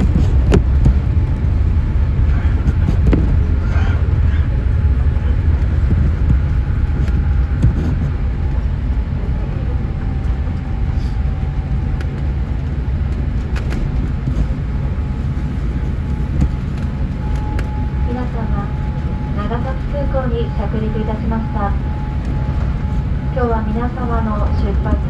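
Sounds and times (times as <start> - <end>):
faint whine: 0.0 - 25.0
wheels and engines rumbling: 0.0 - 25.0.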